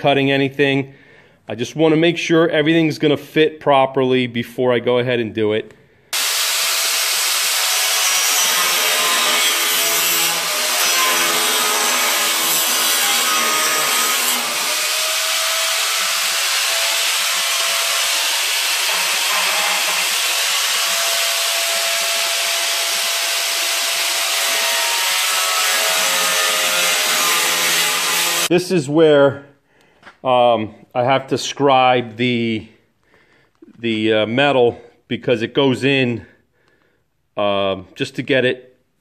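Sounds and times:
angle grinder cutting steel: 0:06.2 - 0:28.5.

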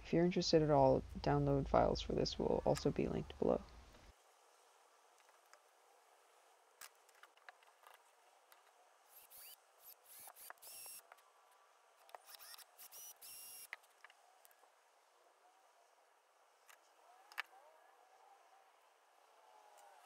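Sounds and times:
cordless drill whining: 0:09.1 - 0:11.1, 0:12.2 - 0:13.7.

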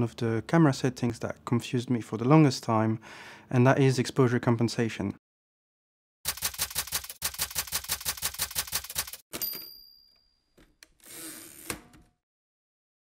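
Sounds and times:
rapid typewriter keystrokes: 0:06.3 - 0:09.2
typewriter bell ding: 0:08.7 - 0:10.6.

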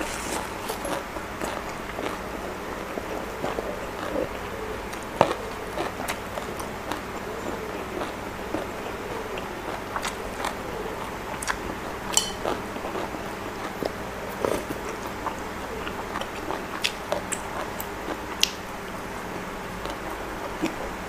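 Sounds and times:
crisp crunches: 0:00.0 - 0:02.2
person chewing food: 0:00.0 - 0:18.7, 0:19.6 - 0:21.0.

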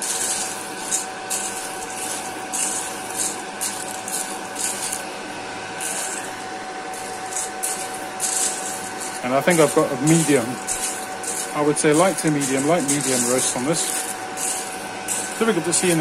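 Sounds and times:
beans stirred with wooden spoon: 0:00.0 - 0:05.1, 0:05.8 - 0:06.4, 0:07.0 - 0:16.0
roaster fan whine: 0:00.0 - 0:16.0.

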